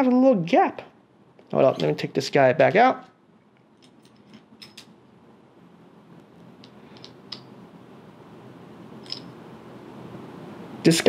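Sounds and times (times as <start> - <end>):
low steady hiss: 0.0 - 11.0.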